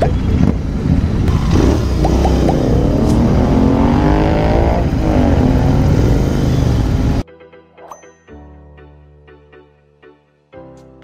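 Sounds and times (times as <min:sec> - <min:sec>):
motorcycle engines revving: 0:00.0 - 0:07.2.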